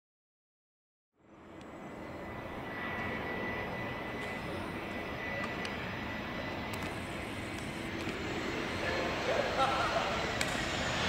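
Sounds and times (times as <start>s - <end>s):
jet engine rumble with whine: 1.2s - 11.0s.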